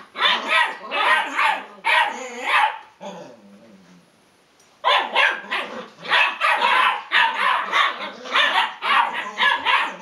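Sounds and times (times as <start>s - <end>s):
small dog barking: 0.1s - 2.9s, 4.8s - 10.0s.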